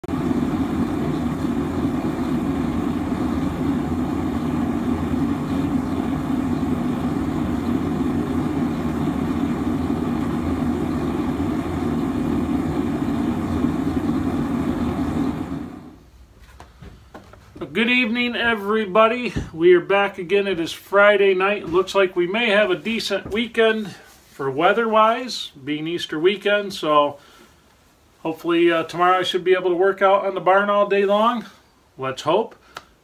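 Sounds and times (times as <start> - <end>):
gas burner rushing: 0.0 - 16.0.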